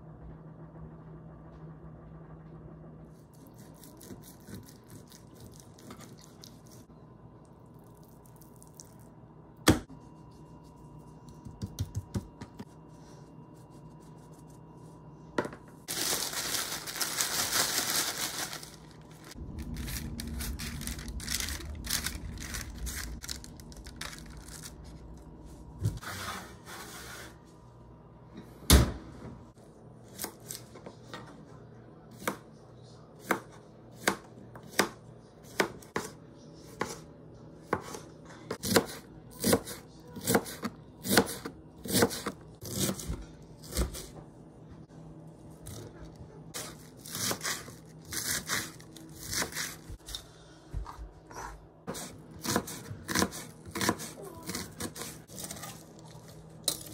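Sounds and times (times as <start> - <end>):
low rumble: 16.2 - 26.0
knife slicing cabbage on board: 37.7 - 44.1, 46.6 - 49.8, 51.3 - 55.7.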